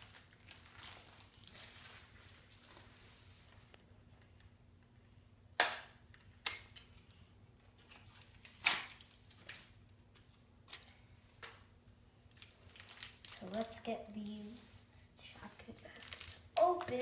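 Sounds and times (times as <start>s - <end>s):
plastic package clicks and snaps: 5.6s - 7.0s, 8.1s - 11.6s.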